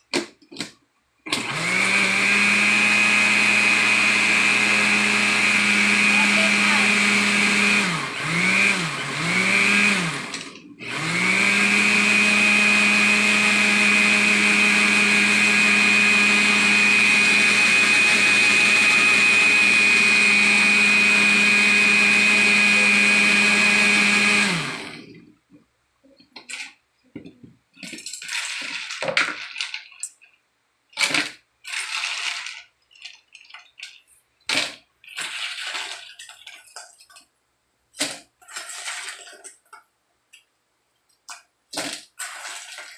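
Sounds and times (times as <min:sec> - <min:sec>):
blender running: 0:01.3 - 0:25.3, 0:27.8 - 0:29.8, 0:31.0 - 0:32.7, 0:34.5 - 0:36.4, 0:38.0 - 0:39.6, 0:41.8 - 0:42.9.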